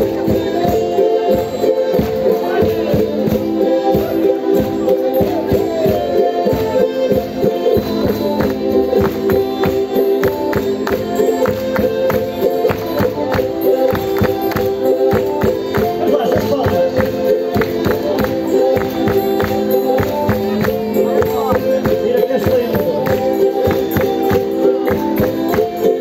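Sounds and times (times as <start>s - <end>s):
held melody notes: 0.0s - 26.0s
sharp percussive strikes: 0.0s - 26.0s.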